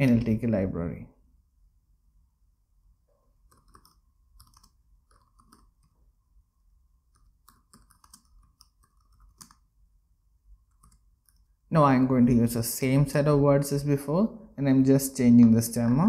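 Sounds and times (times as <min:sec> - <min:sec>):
faint keyboard typing: 0:03.4 - 0:06.1, 0:07.0 - 0:09.8, 0:10.6 - 0:11.6.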